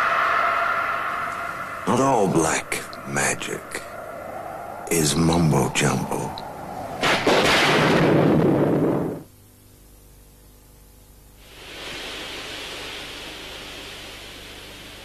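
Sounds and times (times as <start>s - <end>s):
loud rushing noise: 0.0s - 9.2s
low hum: 0.0s - 11.4s
steam hissing: 11.4s - 15.0s.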